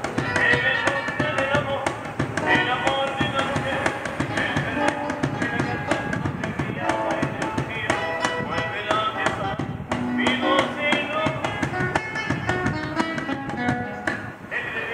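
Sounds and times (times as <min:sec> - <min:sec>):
acoustic guitar strumming: 0:00.0 - 0:14.9
man singing: 0:00.0 - 0:14.9.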